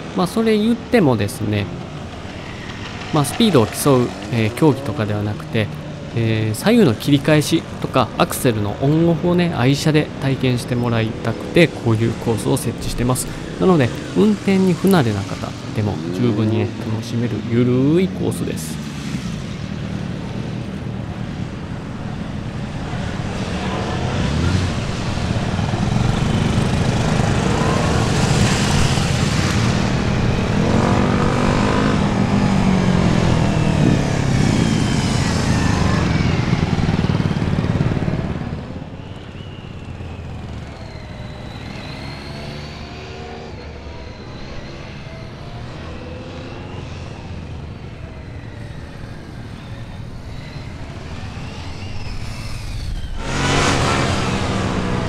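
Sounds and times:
motorcycle engine revving: 0:00.8 - 0:06.2, 0:18.8 - 0:55.0.

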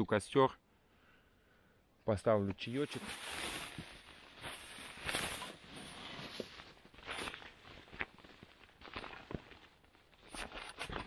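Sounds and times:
crunching in snow: 0:02.6 - 0:11.0
backpack rustling: 0:02.8 - 0:11.0.

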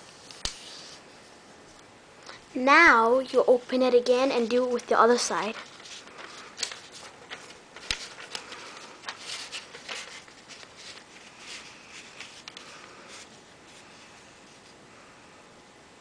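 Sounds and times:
paper rustling and crinkling: 0:04.2 - 0:14.8.

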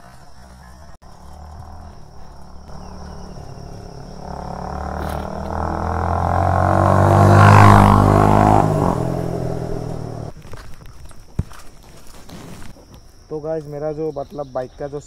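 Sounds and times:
motorcycle passing by: 0:01.0 - 0:10.3.

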